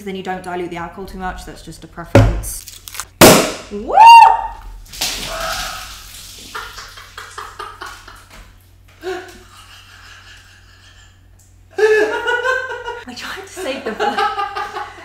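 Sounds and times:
woman whooping: 3.7s - 4.7s
woman laughing: 6.5s - 8.4s, 9.0s - 13.0s, 13.6s - 15.0s.

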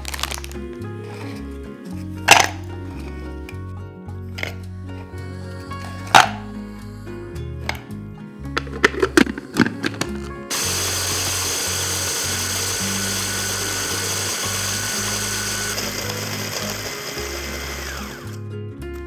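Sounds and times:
blender motor grinding biscuits: 10.5s - 18.4s.

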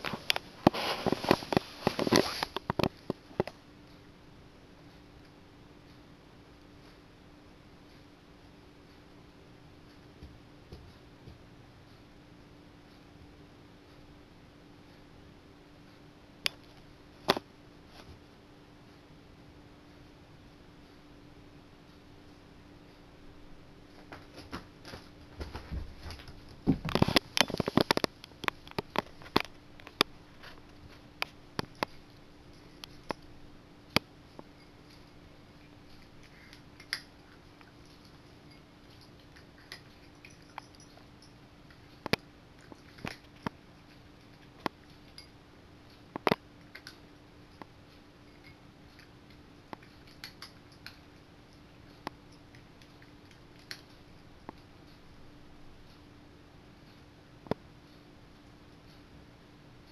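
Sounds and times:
faint steady hum: 0.0s - 59.9s
cat crunching food: 34.3s - 47.7s, 48.3s - 54.7s.

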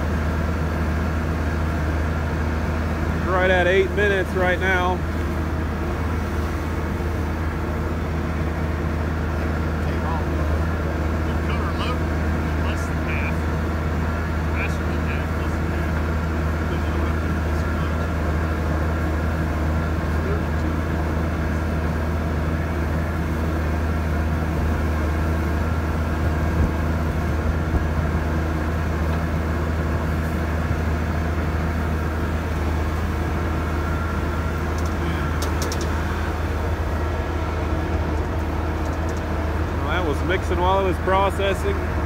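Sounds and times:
tractor engine drone: 0.0s - 42.0s
feed mixer auger turning: 15.8s - 42.0s.

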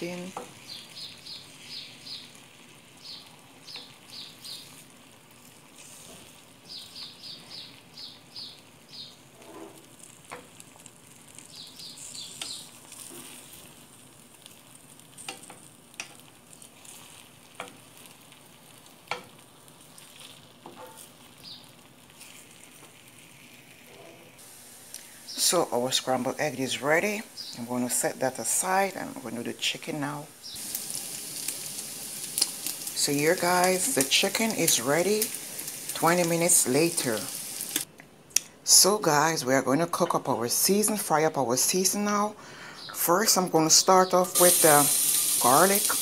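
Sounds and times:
eggs sizzling in a pan: 0.0s - 37.9s, 38.7s - 46.0s
wooden spatula scraping a pan: 9.4s - 9.9s.

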